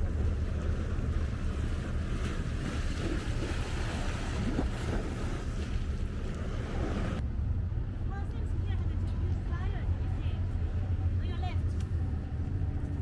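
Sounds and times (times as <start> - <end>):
choppy water lapping: 0.0 - 7.2.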